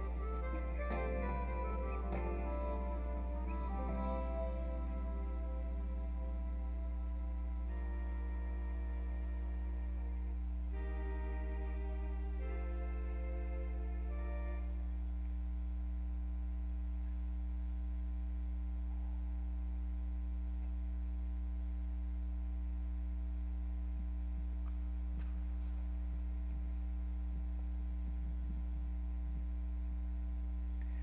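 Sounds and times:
music: 0:00.0 - 0:15.2
electrical mains hum: 0:00.0 - 0:31.0.

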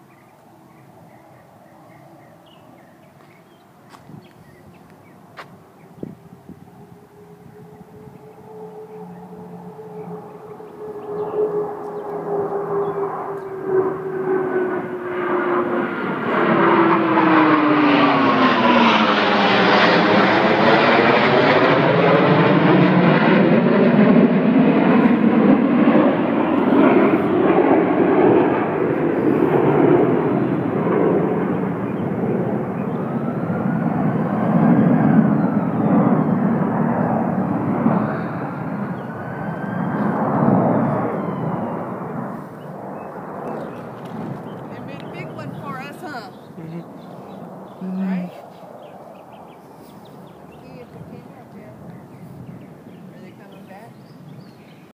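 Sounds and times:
jet roar passing overhead: 0:03.6 - 0:54.9.

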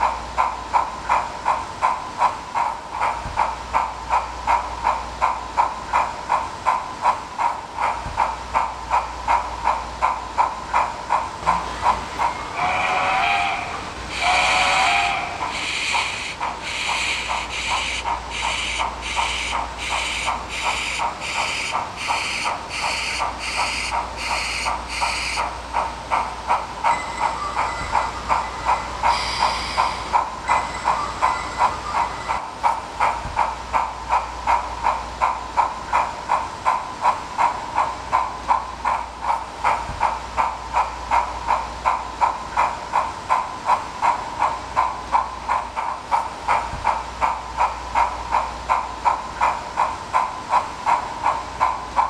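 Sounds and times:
steam locomotive chuffing: 0:00.0 - 0:52.0
sharp steam hiss: 0:12.2 - 0:25.4, 0:29.0 - 0:30.3.

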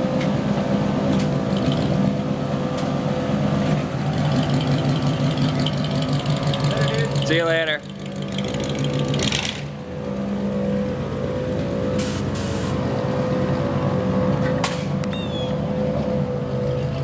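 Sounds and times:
car engine rumbling: 0:00.0 - 0:17.0
short hisses: 0:12.0 - 0:12.8.

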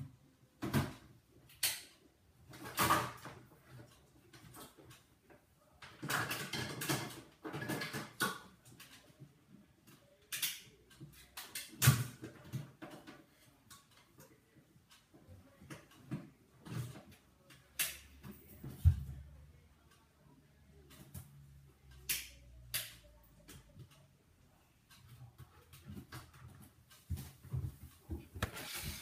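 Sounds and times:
rustling and scraping: 0:26.0 - 0:29.0.

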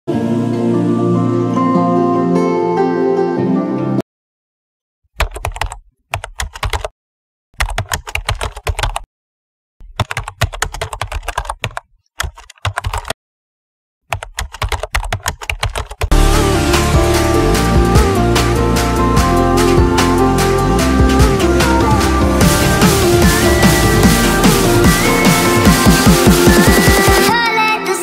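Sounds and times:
music: 0:00.1 - 0:04.0, 0:16.1 - 0:28.0
keyboard key clicks: 0:09.8 - 0:13.2.

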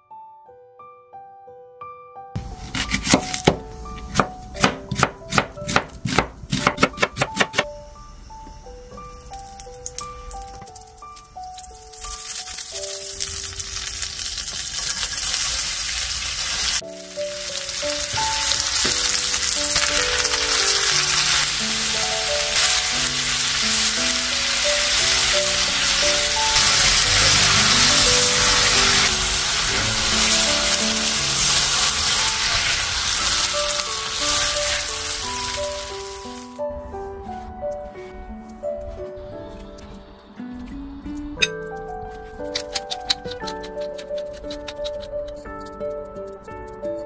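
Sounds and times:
light background melody: 0:00.0 - 0:47.0
onions frying: 0:02.4 - 0:07.6, 0:09.1 - 0:36.6
butter sizzling in a pan: 0:10.7 - 0:36.5.

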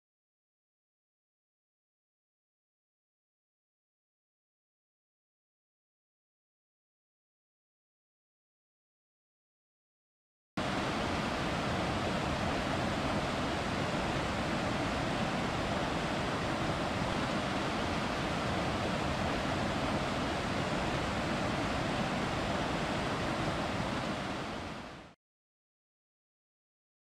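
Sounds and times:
mountain stream over rocks: 0:10.6 - 0:25.2.

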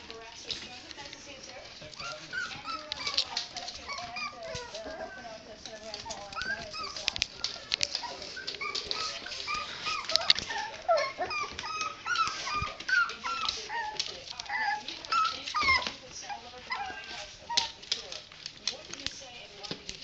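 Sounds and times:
puppies whimpering and yipping: 0:02.0 - 0:18.0.

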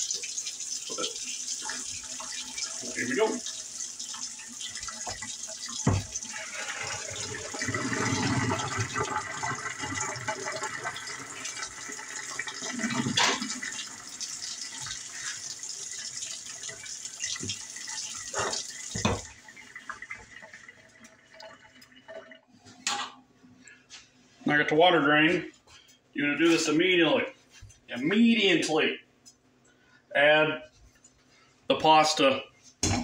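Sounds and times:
water pouring into sink: 0:00.0 - 0:22.5.

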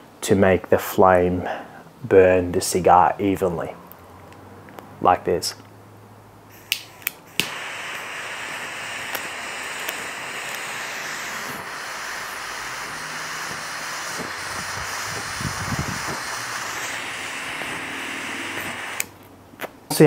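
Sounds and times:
puffing on cigar: 0:06.5 - 0:19.2
lighter flame hissing: 0:06.5 - 0:19.3
lighter clicking: 0:06.6 - 0:19.3.

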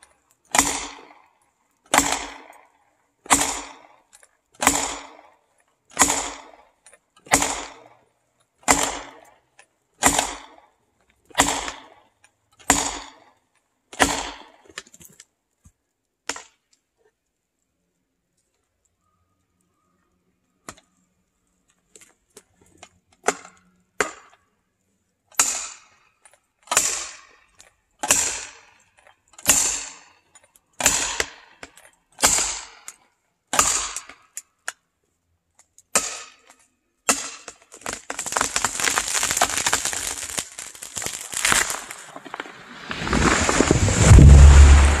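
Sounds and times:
axe striking wedges: 0:00.5 - 0:01.1, 0:04.6 - 0:05.1, 0:05.9 - 0:06.5, 0:07.2 - 0:07.8, 0:08.6 - 0:09.3, 0:10.0 - 0:10.6, 0:11.3 - 0:11.9, 0:12.6 - 0:13.2, 0:13.9 - 0:14.5, 0:23.2 - 0:24.3, 0:25.4 - 0:25.9, 0:26.7 - 0:27.2, 0:28.0 - 0:28.7, 0:30.8 - 0:31.4, 0:32.2 - 0:32.8, 0:33.5 - 0:34.2, 0:35.9 - 0:36.5, 0:37.1 - 0:39.0
wood cracking and splintering: 0:37.1 - 0:45.0.

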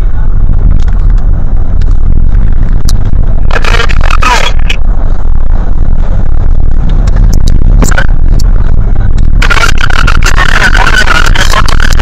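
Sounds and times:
car rumbling in motion: 0:00.0 - 0:12.0
person speaking: 0:03.5 - 0:04.8, 0:09.4 - 0:12.0.

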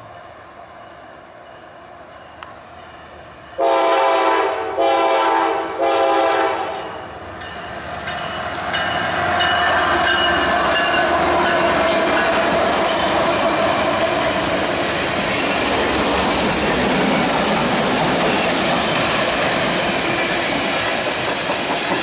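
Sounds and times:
train rumbling past on rails: 0:00.0 - 0:22.0
locomotive air horn blasts: 0:03.6 - 0:06.9.

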